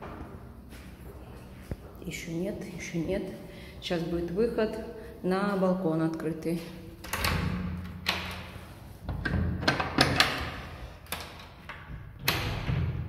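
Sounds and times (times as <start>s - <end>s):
bolts and latch clacking: 7.0s - 13.0s.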